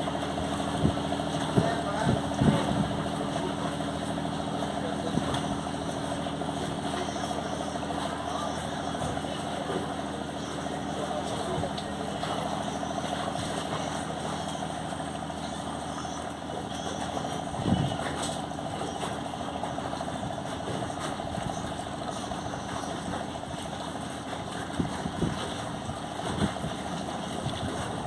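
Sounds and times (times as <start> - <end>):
boat engine droning: 0.0 - 28.0.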